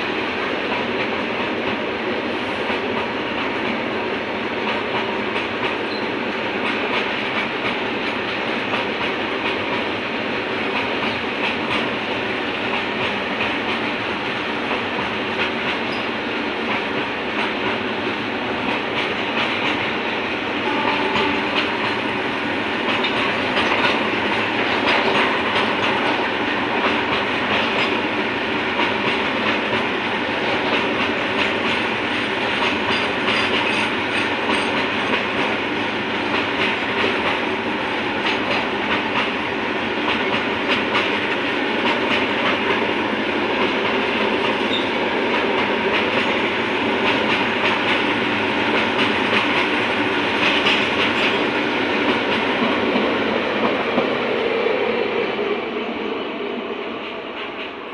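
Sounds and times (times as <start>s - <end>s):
freight train passing: 0.0s - 57.9s
train wheels clattering over rail joints: 10.6s - 22.2s, 22.8s - 37.5s, 38.1s - 54.1s.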